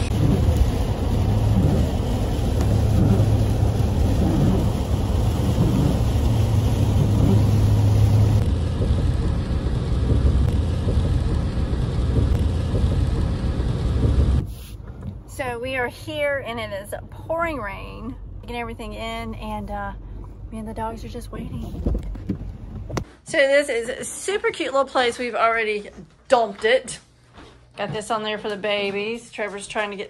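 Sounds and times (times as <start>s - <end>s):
truck engine drone: 0.0s - 15.6s, 16.3s - 21.4s
road noise: 0.0s - 23.0s.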